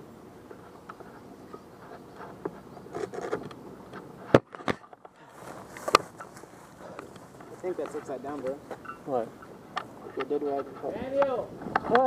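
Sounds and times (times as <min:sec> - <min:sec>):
footsteps in grass: 0:05.2 - 0:10.9.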